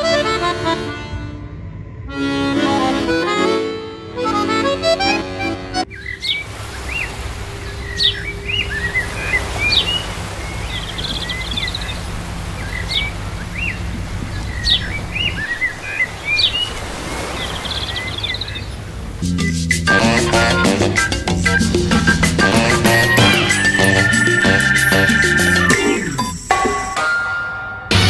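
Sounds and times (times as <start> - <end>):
steady low rumble: 0.0 - 4.2
birds chirping: 5.8 - 26.5.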